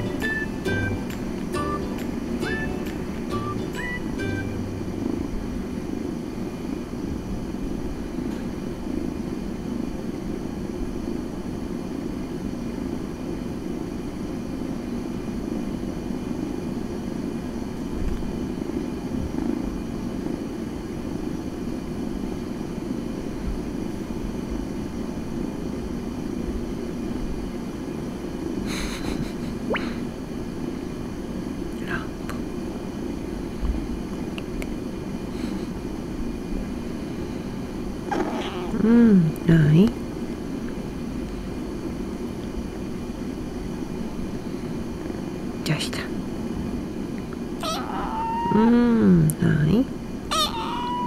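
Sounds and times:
kitten purring: 38.1 - 39.4.

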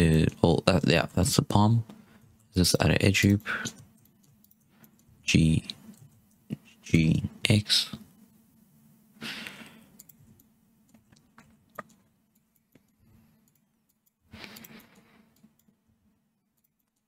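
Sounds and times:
steady low hum: 0.0 - 17.0
person breathing out: 9.2 - 9.9
mouse and keyboard clicks: 9.9 - 15.7.

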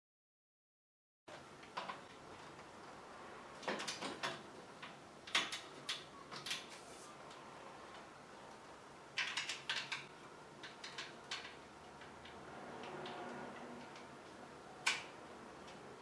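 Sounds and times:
plastic parts clicking and knocking: 3.6 - 6.7, 9.2 - 15.8.

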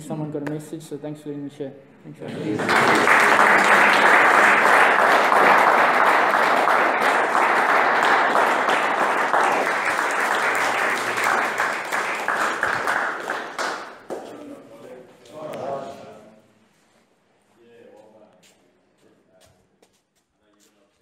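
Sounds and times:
people applauding: 2.3 - 14.4.

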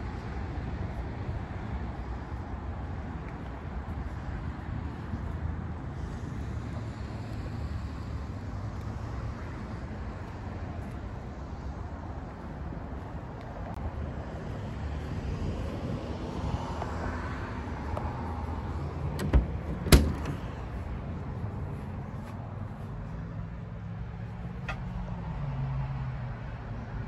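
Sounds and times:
road traffic rumble: 0.0 - 27.0
door latch clicks: 19.0 - 20.6.

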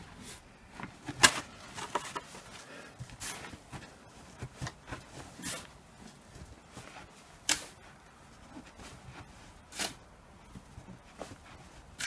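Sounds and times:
snow shovel crunching snow: 2.7 - 8.0, 8.9 - 10.6.

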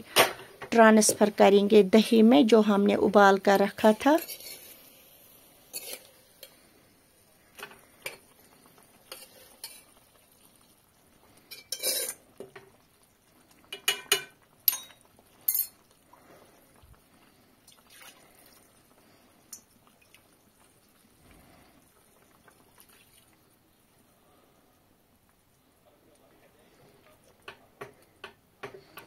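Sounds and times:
spoon scraping steel pot: 3.6 - 4.9, 5.7 - 6.6, 11.5 - 12.2.

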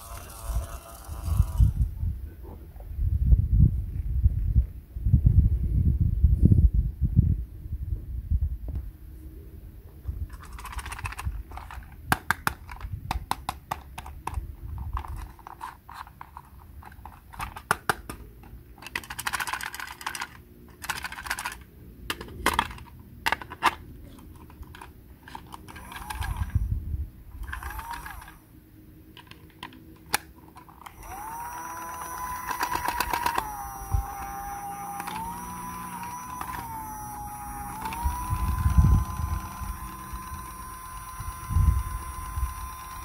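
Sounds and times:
plastic clicks and rattles: 10.3 - 26.6, 29.1 - 36.9.

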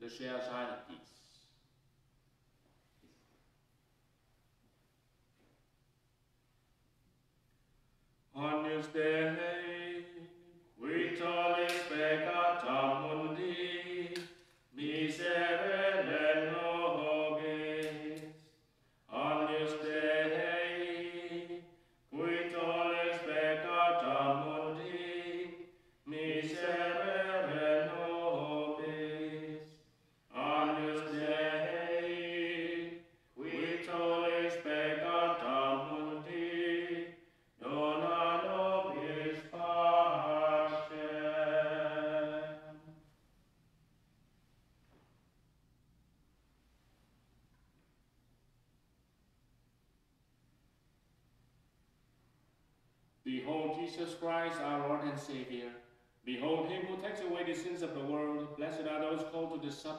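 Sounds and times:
man chanting a sung prayer: 53.3 - 59.9.

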